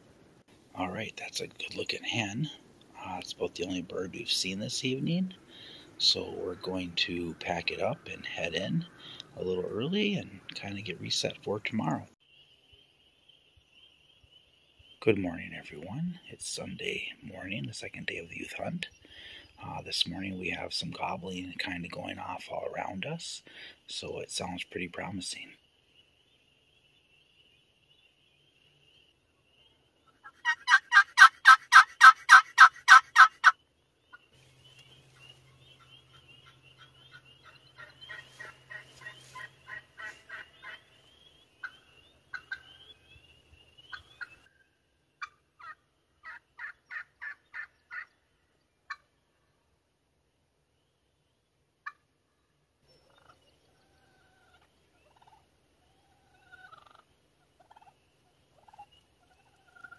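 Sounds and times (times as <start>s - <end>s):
turkey yelping: 30.1s - 33.6s, 36.1s - 40.8s, 41.6s - 43.0s, 45.2s - 48.1s, 51.8s - 52.0s, 53.1s - 58.0s, 58.6s - 59.9s.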